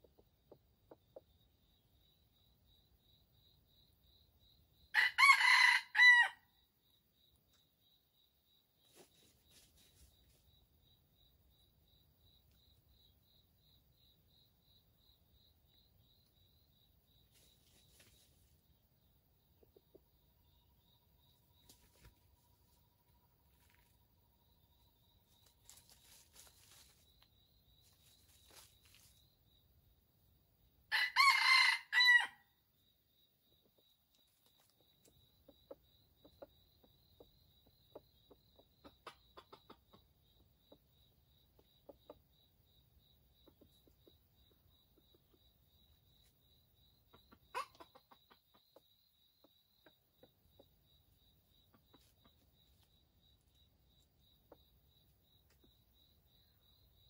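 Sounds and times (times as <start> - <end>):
high insect trill: 0.9 - 57.0
rooster crowing: 4.9 - 6.5, 30.9 - 32.5
soft short clucks: 38.3 - 40.1.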